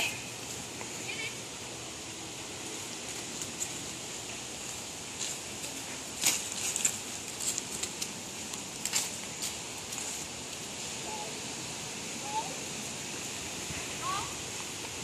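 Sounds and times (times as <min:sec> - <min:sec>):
faint outdoor hiss: 0:00.0 - 0:15.0
footsteps crunching dry leaves: 0:02.4 - 0:11.4.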